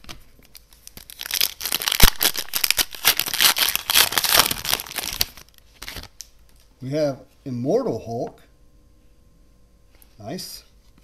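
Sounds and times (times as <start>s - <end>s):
foil pack tearing and crinkling: 0.6s - 6.2s.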